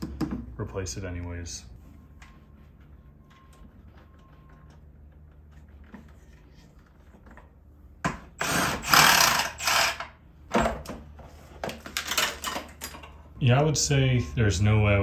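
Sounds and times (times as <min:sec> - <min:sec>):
cordless power driver running: 0:08.4 - 0:10.1.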